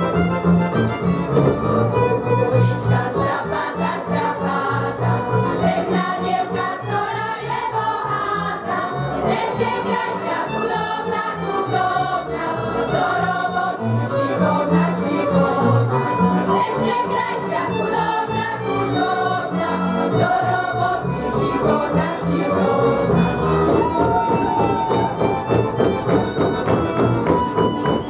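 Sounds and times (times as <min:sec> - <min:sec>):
group singing in chorus: 0:02.8 - 0:23.6.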